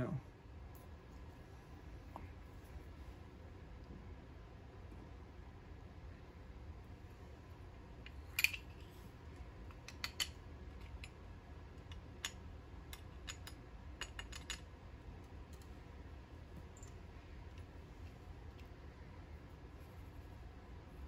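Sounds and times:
small objects clicking on a bench: 9.7s - 11.2s, 11.8s - 14.7s.

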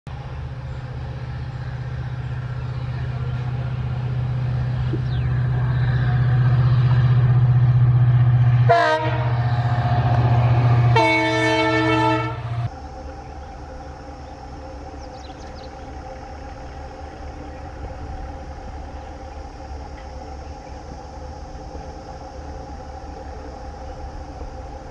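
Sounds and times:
diesel locomotive engine running: 0.1s - 24.9s
distant diesel locomotive hauling: 0.1s - 24.9s
train horn blasts: 8.5s - 12.7s.

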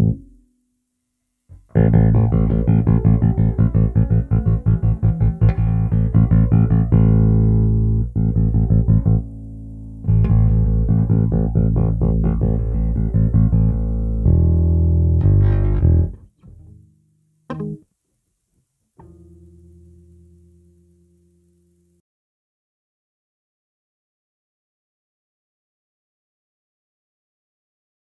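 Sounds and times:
bass guitar plucked notes: 0.0s - 0.5s, 1.5s - 16.9s, 17.5s - 17.8s, 19.0s - 21.8s.

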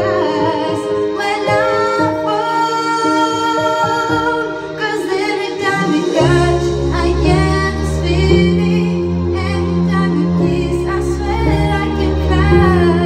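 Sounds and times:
backing music: 0.0s - 13.0s
woman singing into a microphone: 0.0s - 13.0s
low bass notes: 6.2s - 13.0s.

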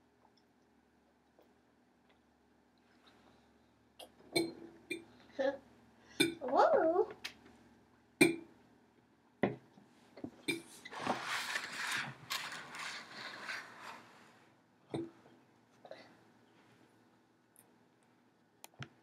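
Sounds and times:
scraping and rubbing: 10.8s - 14.5s.

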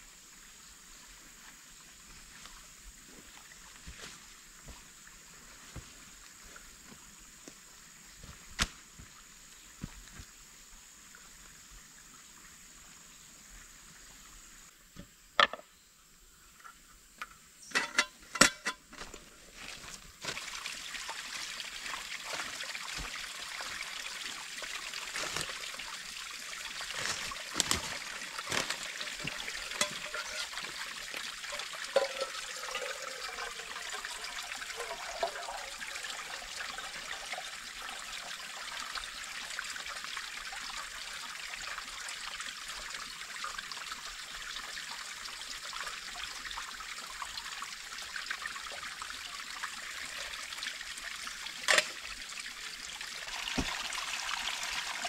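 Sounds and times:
stream trickling over rocks: 0.0s - 14.8s, 16.4s - 55.0s
water splashes: 19.0s - 36.4s, 51.5s - 55.0s.

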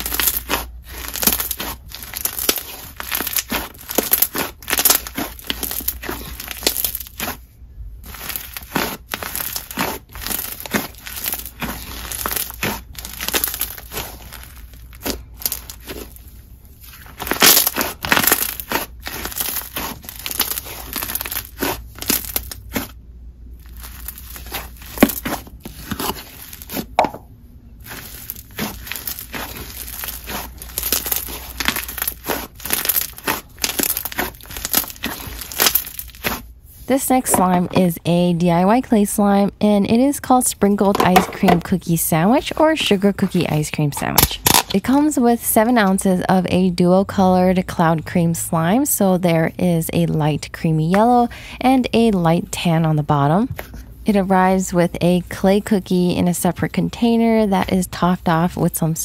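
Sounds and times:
slime crackling and popping: 0.0s - 7.4s, 8.0s - 27.2s, 27.8s - 36.5s, 44.0s - 44.8s.

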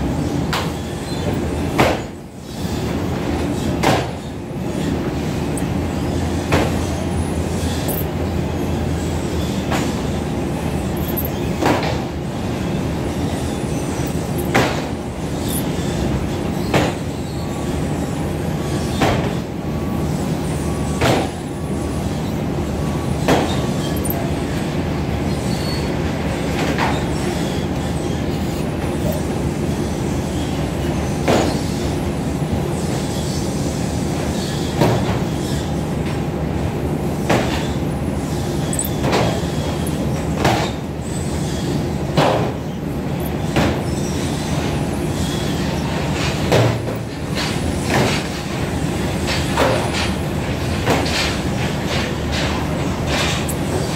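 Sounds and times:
conveyor belt droning: 0.0s - 53.9s.

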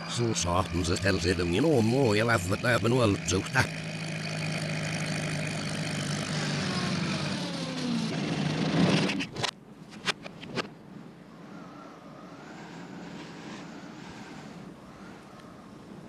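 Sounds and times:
reversed motor drone: 0.0s - 9.5s, 11.4s - 15.8s
faint hiss with whistle: 11.5s - 15.4s.

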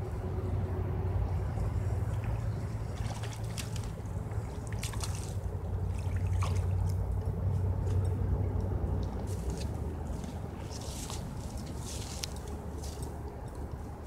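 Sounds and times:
steady low hum: 0.0s - 14.0s
fish splashing at water surface: 1.8s - 7.2s.

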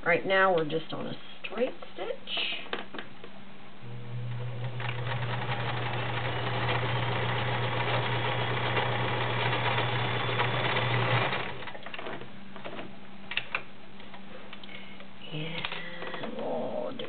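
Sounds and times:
electric sewing machine running: 3.9s - 11.8s.

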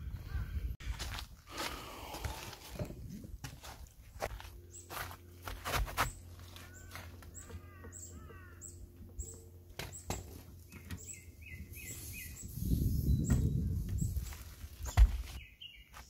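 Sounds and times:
small birds chirping: 4.6s - 5.4s, 6.0s - 16.0s.

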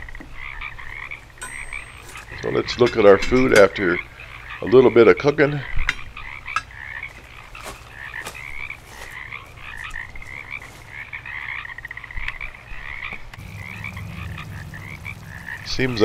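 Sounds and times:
frogs croaking: 0.0s - 16.0s
low steady hum: 13.4s - 16.0s.

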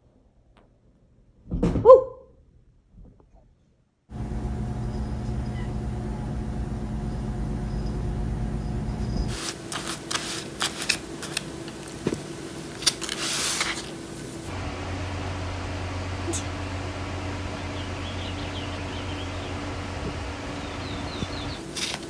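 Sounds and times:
steady low hum: 4.1s - 12.8s, 13.8s - 21.8s.

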